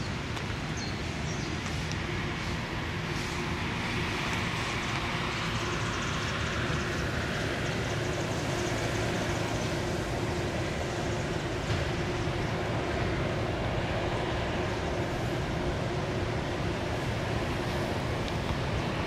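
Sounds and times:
hiss: 0:01.7 - 0:11.4.

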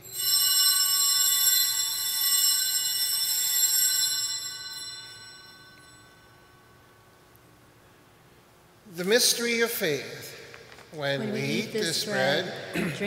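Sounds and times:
altar bell ringing: 0:00.0 - 0:07.0.

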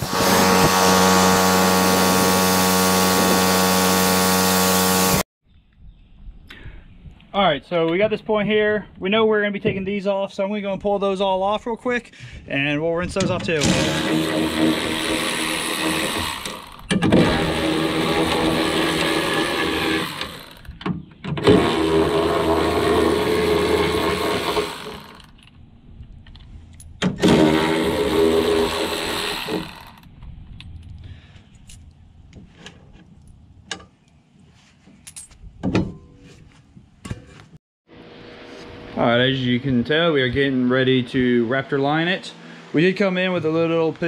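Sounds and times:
electric ratchet whirring: 0:00.0 - 0:05.2, 0:13.7 - 0:20.8, 0:21.4 - 0:25.4, 0:27.2 - 0:30.1.

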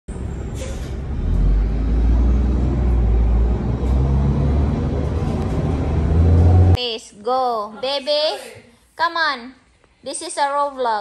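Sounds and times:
car engine and road rumble: 0:00.1 - 0:06.8.

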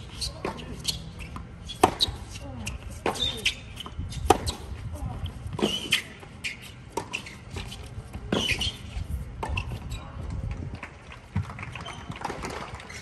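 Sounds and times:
shoes squeaking on court: 0:00.0 - 0:10.4, 0:11.3 - 0:13.0
tennis ball hit by racquets: 0:00.2 - 0:04.7.

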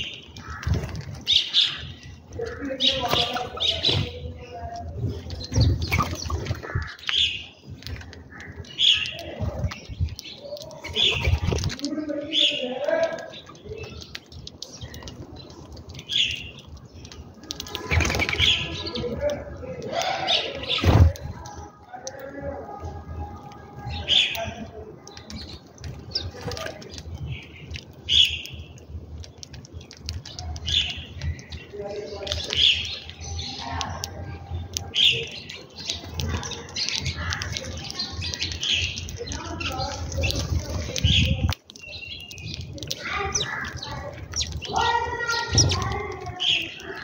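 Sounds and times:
sparrows chirping: 0:00.0 - 0:47.0
fluttering wingbeats: 0:05.1 - 0:07.0, 0:17.5 - 0:19.0
dove wings flapping: 0:17.5 - 0:18.8.

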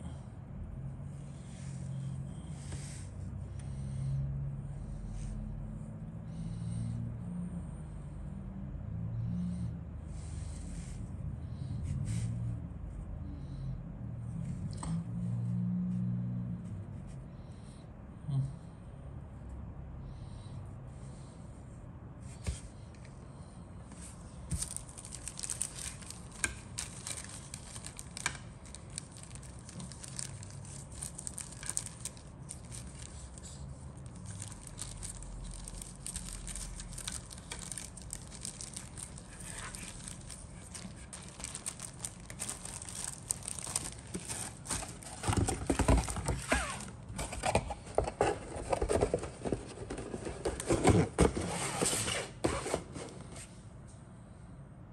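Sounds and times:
plastic bag crinkling: 0:24.5 - 0:50.6.

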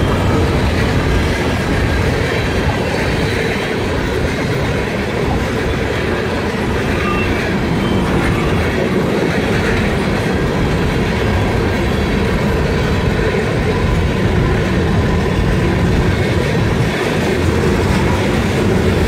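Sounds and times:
freight train wheels on rails: 0:00.0 - 0:19.0.

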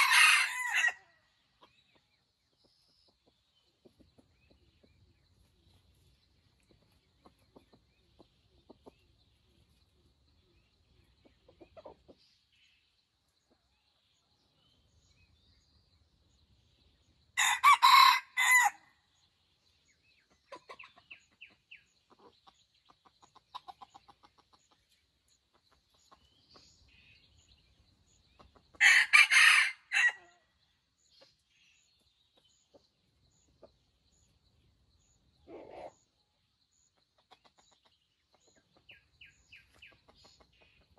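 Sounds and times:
rooster crowing: 0:00.0 - 0:01.0, 0:17.4 - 0:18.8, 0:28.8 - 0:30.3.

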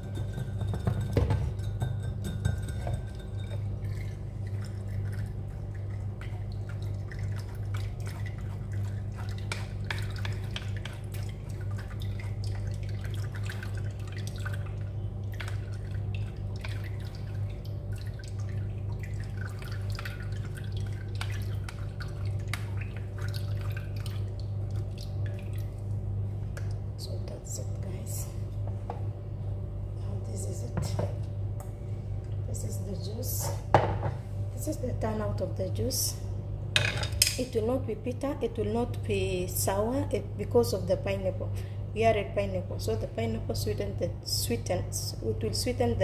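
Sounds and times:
steady low hum: 0:00.0 - 0:46.0
juice dripping into jug: 0:03.2 - 0:27.0.

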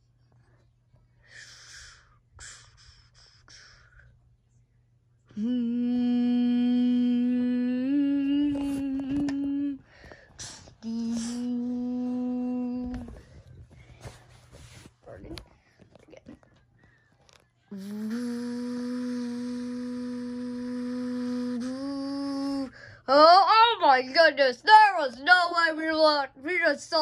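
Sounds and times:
person humming: 0:05.3 - 0:13.2, 0:17.7 - 0:22.8
breathy hissing sounds: 0:09.9 - 0:11.6, 0:17.7 - 0:22.8.

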